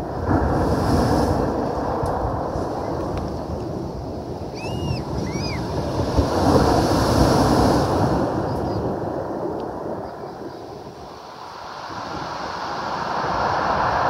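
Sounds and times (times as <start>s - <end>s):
sea waves breaking on pebbles: 0.0s - 10.0s.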